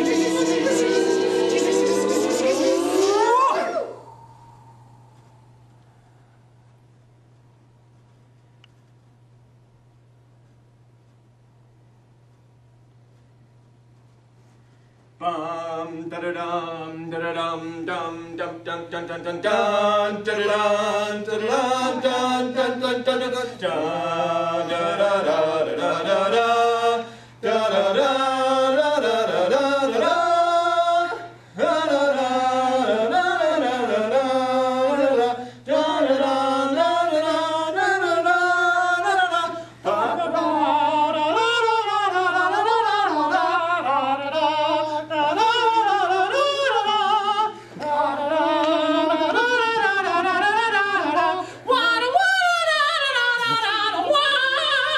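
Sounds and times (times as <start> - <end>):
group singing a cappella: 0.0 - 4.1, 15.2 - 54.9.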